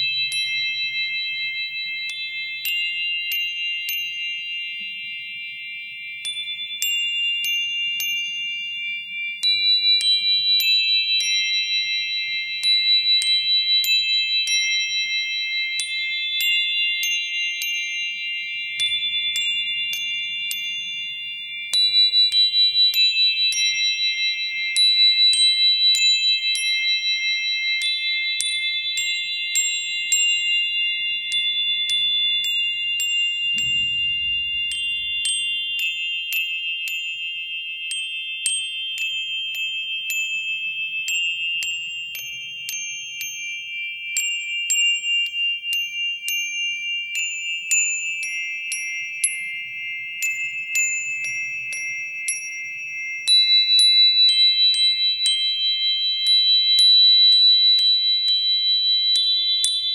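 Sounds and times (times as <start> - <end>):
bright chime-like pings: 14.3 - 59.9
sustained high tones: 33.6 - 36.2.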